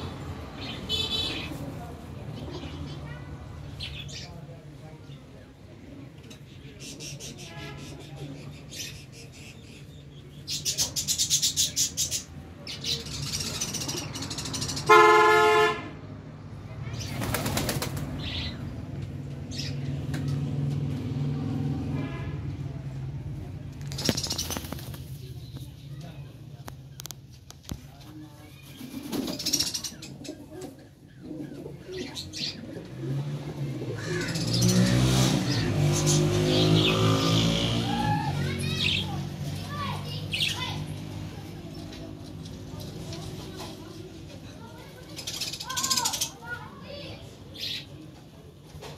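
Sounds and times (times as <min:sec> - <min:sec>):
pigeon wings flapping: 0:17.1 - 0:18.2, 0:23.9 - 0:25.2
pigeons cooing: 0:28.8 - 0:37.7.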